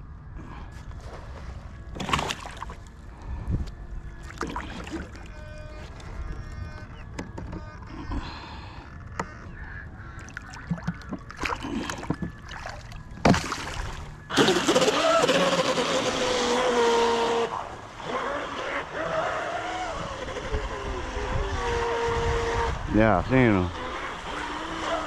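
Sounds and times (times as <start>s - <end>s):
electric motor whine: 12.0s - 25.0s.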